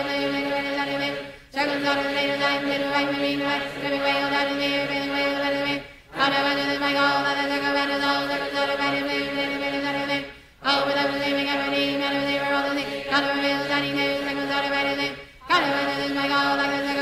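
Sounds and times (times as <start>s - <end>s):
voices chanting in unison: 0.0s - 17.0s.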